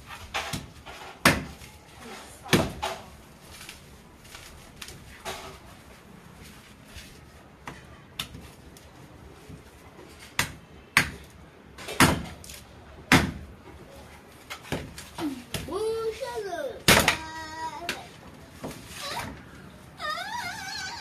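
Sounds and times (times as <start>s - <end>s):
machete chopping coconut husk: 0.3s - 1.7s, 2.4s - 3.0s, 10.3s - 13.4s.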